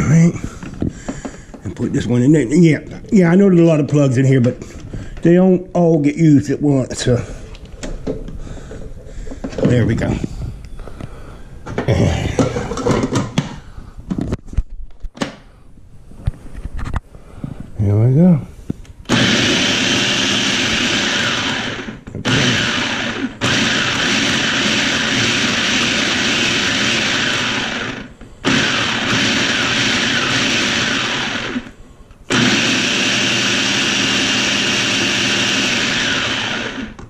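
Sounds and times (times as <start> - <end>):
food processor blending: 19.1 - 37.0.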